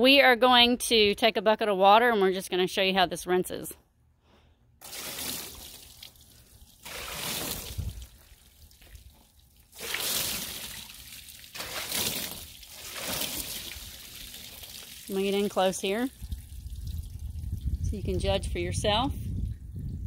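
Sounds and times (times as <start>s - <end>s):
water splashing and trickling: 4.8s - 20.0s.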